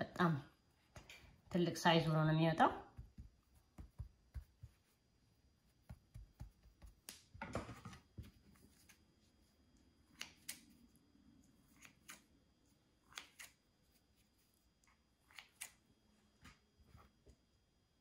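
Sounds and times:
scissors snipping dough: 0:10.1 - 0:10.8, 0:13.0 - 0:13.6, 0:15.2 - 0:15.8.

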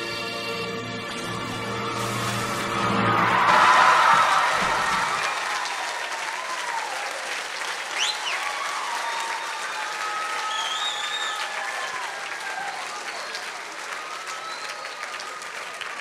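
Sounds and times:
backing music: 0:00.0 - 0:05.0
audience applauding and cheering: 0:01.6 - 0:16.0.

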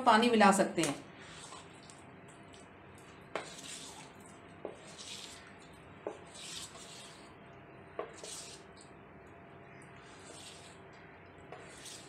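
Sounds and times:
spoon swishing through batter: 0:01.2 - 0:02.0, 0:03.4 - 0:05.5, 0:06.1 - 0:07.4, 0:08.1 - 0:08.9, 0:10.0 - 0:10.9, 0:11.6 - 0:12.0.

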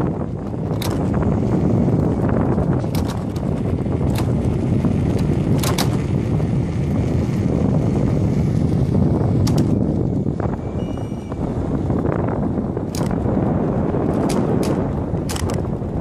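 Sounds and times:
tyres rolling on asphalt: 0:00.0 - 0:10.6
wind buffeting microphone: 0:00.0 - 0:16.0
sharp clicks: 0:00.6 - 0:06.1, 0:09.4 - 0:09.8, 0:12.9 - 0:13.2, 0:14.1 - 0:15.7.

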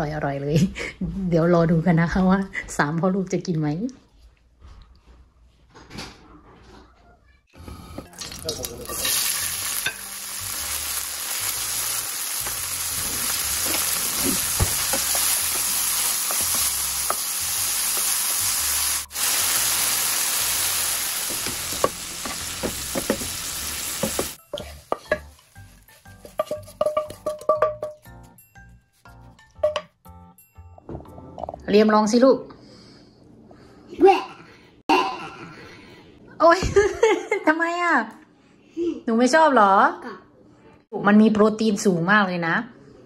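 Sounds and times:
food sizzling in hot oil: 0:08.0 - 0:27.4
wooden spatula clicking and scraping: 0:24.0 - 0:28.1.

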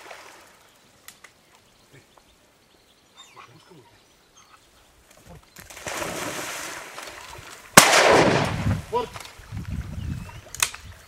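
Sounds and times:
dog splashing into water: 0:05.7 - 0:07.1.

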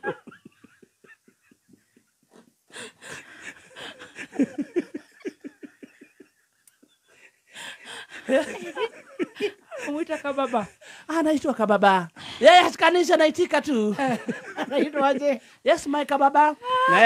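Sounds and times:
man laughing breathlessly: 0:00.0 - 0:11.1.

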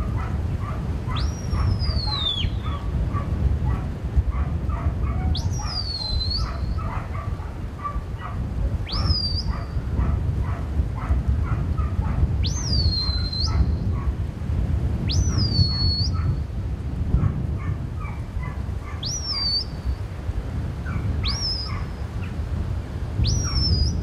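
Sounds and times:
shepherd's whistle: 0:01.2 - 0:02.7, 0:05.4 - 0:06.6, 0:08.9 - 0:09.7, 0:12.4 - 0:13.7, 0:15.1 - 0:16.2, 0:19.0 - 0:19.8, 0:21.2 - 0:21.8, 0:23.2 - 0:24.0.

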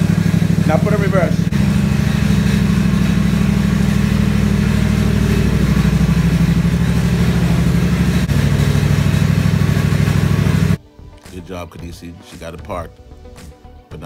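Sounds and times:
riding mower engine running: 0:00.0 - 0:10.8.

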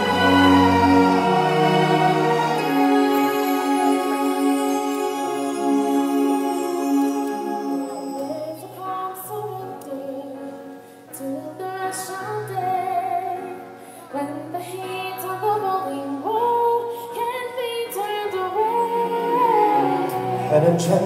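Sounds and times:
instrumental accompaniment: 0:00.0 - 0:10.0, 0:18.3 - 0:21.0
woman singing: 0:00.0 - 0:20.5.

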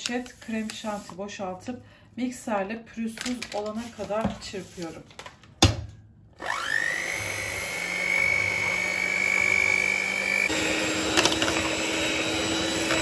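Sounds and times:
electric hand mixer whining: 0:06.4 - 0:13.0.

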